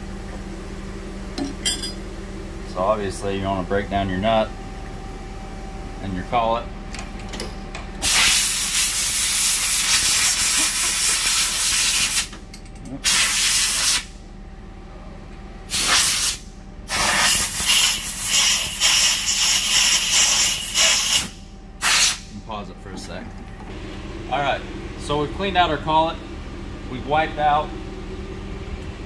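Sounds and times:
compressed air blow gun blasting: 8.0 - 12.3, 13.0 - 14.1, 15.7 - 22.3.

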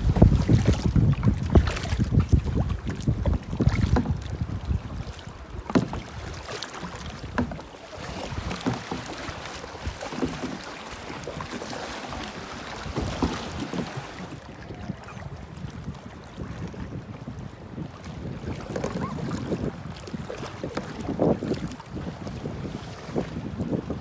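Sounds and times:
seawater splashing around kayak: 0.0 - 24.0
wind buffeting microphone: 0.0 - 24.0
small waves washing over rocks: 5.9 - 14.4.

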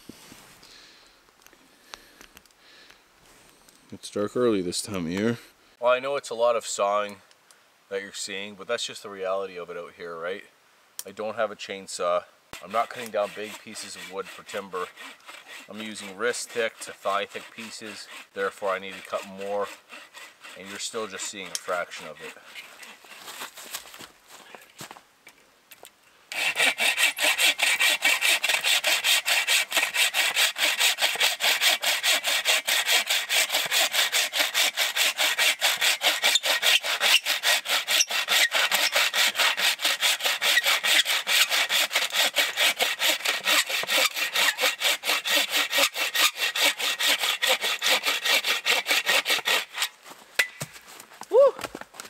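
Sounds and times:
hand saw cutting log: 12.6 - 23.8, 26.3 - 50.0.

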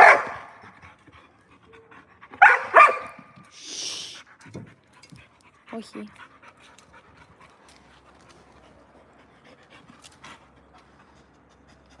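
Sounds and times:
dog panting: 0.0 - 12.0
dog sniff: 2.4 - 4.5.

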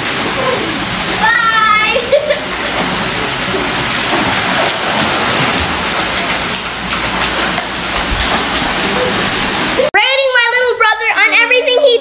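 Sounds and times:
water feature pouring: 0.0 - 9.9
water splashing in pool: 0.0 - 9.9.

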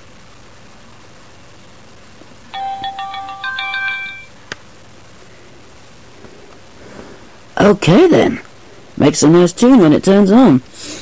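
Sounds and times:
camcorder start-up jingle: 2.6 - 4.4.

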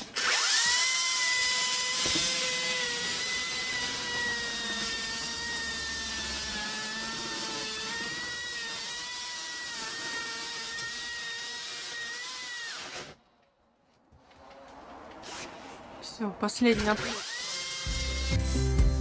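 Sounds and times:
power tool motor whine: 0.0 - 13.2, 16.7 - 18.6.

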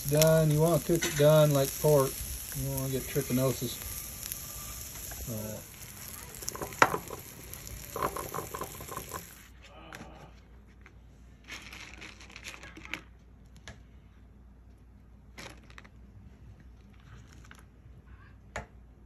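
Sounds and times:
faint rustling of food handling: 15.2 - 18.2.

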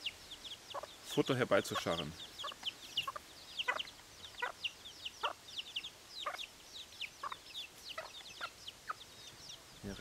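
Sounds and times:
chicks peeping: 0.0 - 10.0
hen clucking: 0.0 - 10.0.

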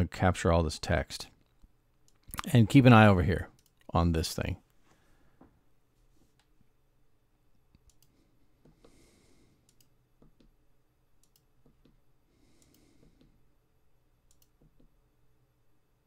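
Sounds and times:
computer control clicks: 14.3 - 14.9.

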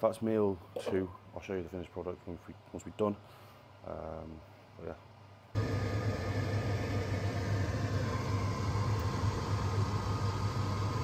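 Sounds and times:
low machine hum: 5.6 - 11.0.

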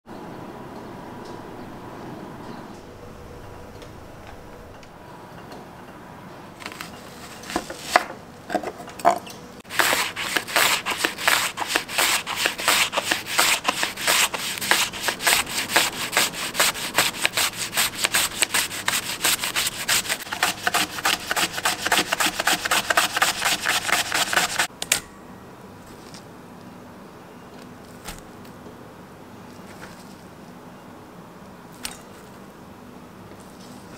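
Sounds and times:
onion scraping across slicer blade: 6.6 - 8.2, 9.7 - 24.7.

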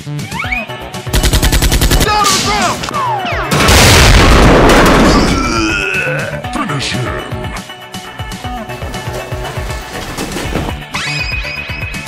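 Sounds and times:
machine-gun fire: 1.1 - 2.7
loud explosion boom: 3.6 - 5.4.

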